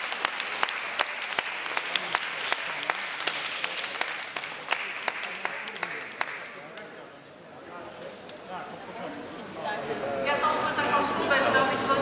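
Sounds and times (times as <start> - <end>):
people applauding: 0.0 - 7.0.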